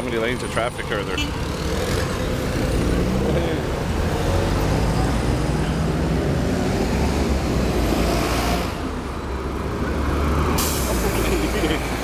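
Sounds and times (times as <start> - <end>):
traffic rumble: 0.0 - 12.0
vehicle passing: 0.9 - 12.0.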